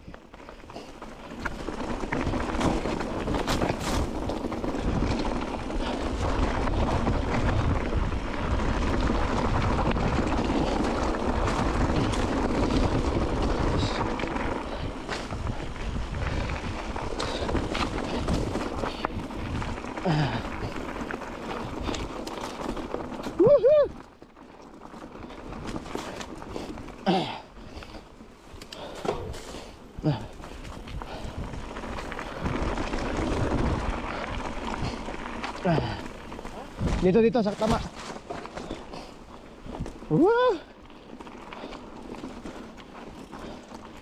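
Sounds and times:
wind buffeting microphone: 1.3s - 24.0s, 29.1s - 38.8s.

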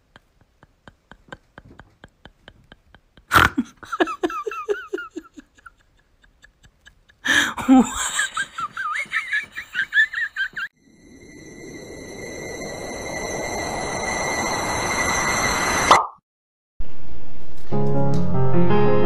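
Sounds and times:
high-pitched giggling: 0.0s - 10.7s
person laughing: 0.0s - 10.7s.

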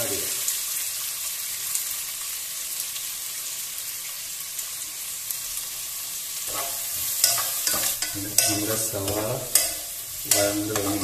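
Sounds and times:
onions sizzling in hot oil: 0.0s - 11.0s
spatula scraping a pan: 6.4s - 11.0s.

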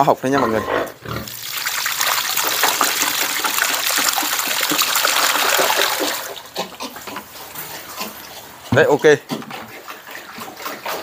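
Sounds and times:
water pouring and splashing: 1.2s - 8.1s.

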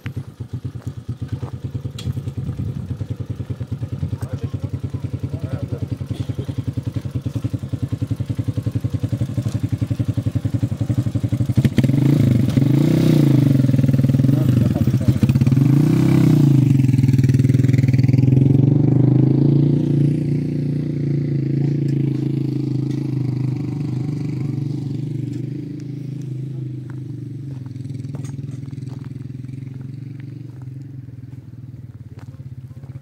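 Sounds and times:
small engine puttering and revving: 0.0s - 33.0s.

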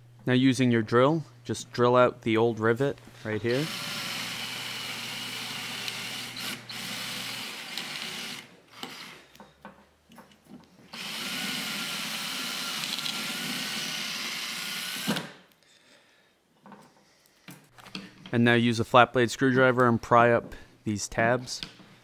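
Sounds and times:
cordless drill drilling metal: 3.5s - 9.4s, 10.9s - 15.4s.

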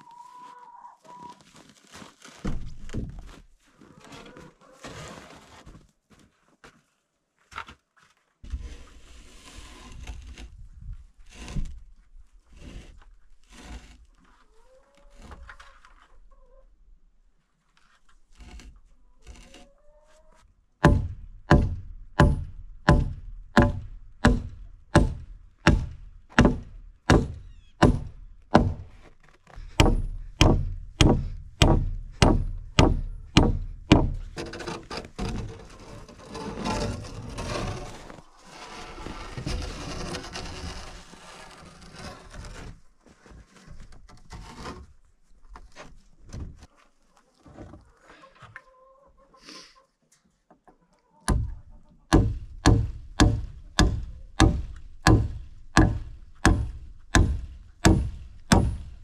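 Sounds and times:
hammer driving nails into wood: 20.8s - 28.8s, 29.7s - 34.7s, 52.1s - 59.0s
rustling noise: 34.3s - 48.1s.

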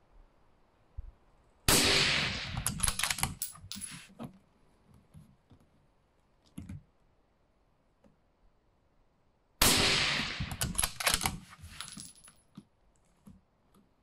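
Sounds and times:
rifle shot: 1.7s - 3.1s, 9.6s - 11.4s
sharp metallic clicks: 10.4s - 11.4s.

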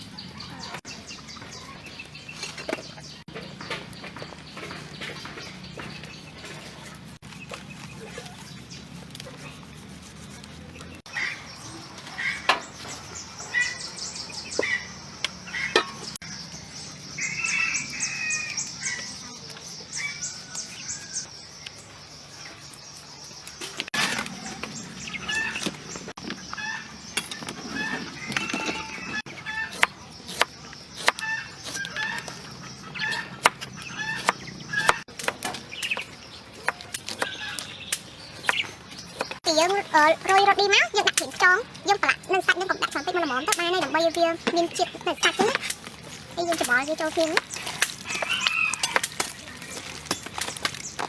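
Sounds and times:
chickens clucking: 24.0s - 30.4s, 31.0s - 50.8s
rooster crowing: 48.0s - 49.1s.

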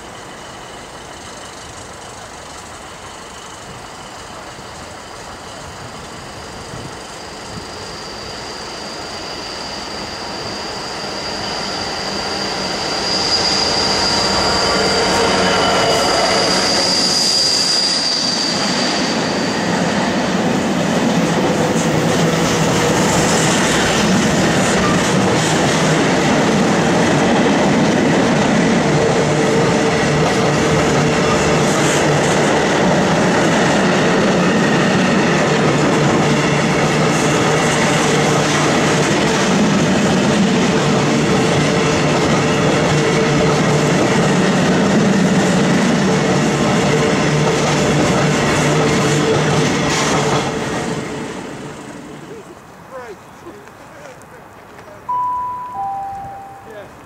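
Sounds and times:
diesel locomotive passing: 0.0s - 57.0s
high wheel squeal: 6.1s - 20.5s.

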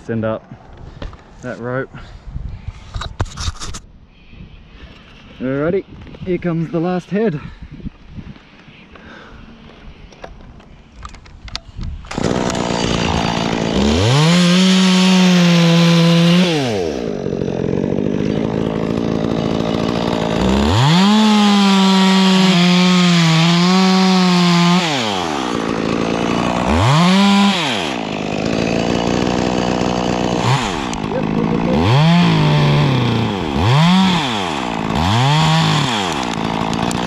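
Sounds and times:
chainsaw revving and cutting wood: 12.0s - 37.0s
chainsaw idling: 12.1s - 37.0s.

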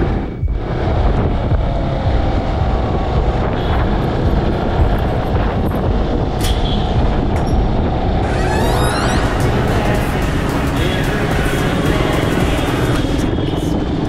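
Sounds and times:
motorcycle engine running: 0.0s - 8.3s, 9.1s - 14.0s
wind rush on microphone: 0.0s - 14.0s.

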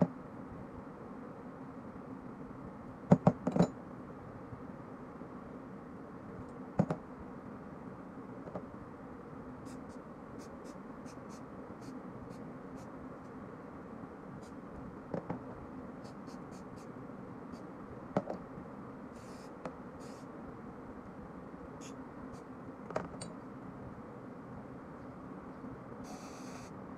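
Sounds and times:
aerosol spray hisses: 19.2s - 20.3s, 26.0s - 26.7s.

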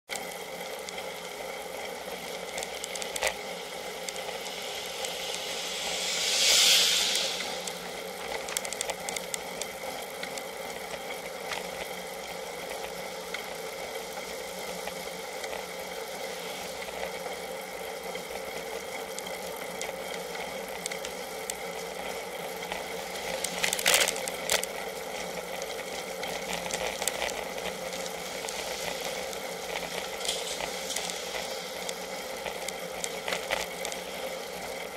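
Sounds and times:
bike camera hum and rattle: 0.1s - 6.5s, 7.6s - 34.9s
vehicle passing whoosh: 4.2s - 8.5s.

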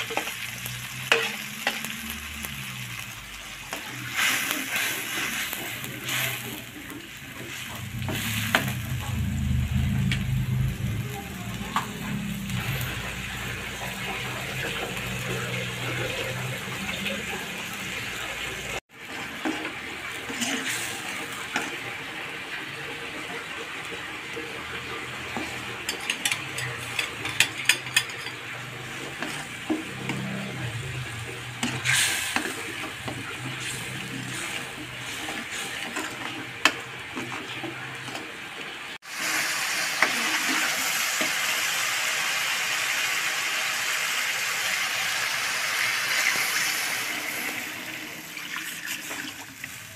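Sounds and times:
metal spatula scraping a wok: 0.0s - 1.9s, 25.4s - 38.2s
spice paste sizzling in oil: 0.0s - 9.0s, 39.0s - 47.5s.

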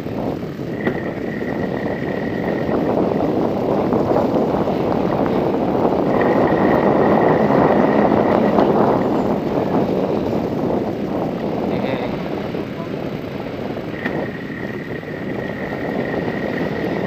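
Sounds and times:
tyre noise on dirt road: 0.0s - 17.0s
wind rushing over microphone: 0.0s - 17.0s
faint high whine: 0.6s - 10.5s, 13.8s - 17.0s.

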